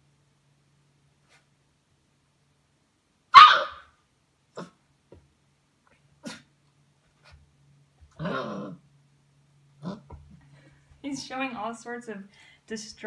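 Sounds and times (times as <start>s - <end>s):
puppy barking: 3.3s - 3.9s
puppy vocal sound: 8.1s - 8.8s.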